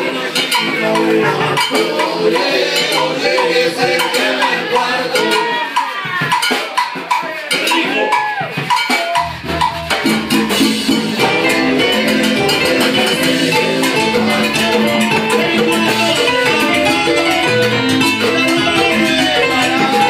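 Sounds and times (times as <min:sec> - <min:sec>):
live salsa band: 0:00.0 - 0:20.0
percussion: 0:00.0 - 0:20.0
bass line: 0:09.2 - 0:20.0.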